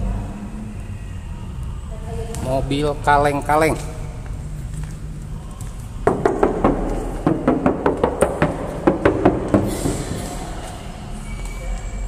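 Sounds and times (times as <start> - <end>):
hand knocking on sheet metal: 6.1 - 9.7.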